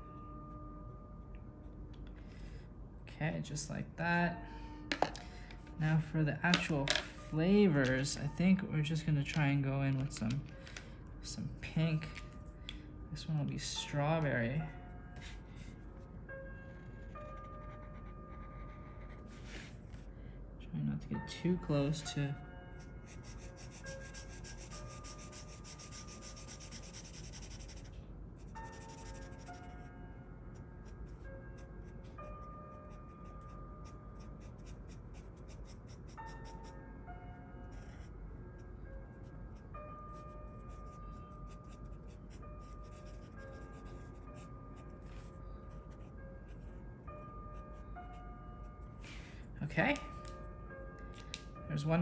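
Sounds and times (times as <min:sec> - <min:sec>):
soft bell-like background music: 0:00.0 - 0:52.0
marker scratching on paper: 0:23.0 - 0:27.9, 0:28.7 - 0:29.6, 0:32.9 - 0:36.5, 0:41.6 - 0:45.3
marker scribbling on paper: 0:23.0 - 0:27.9, 0:28.7 - 0:29.6.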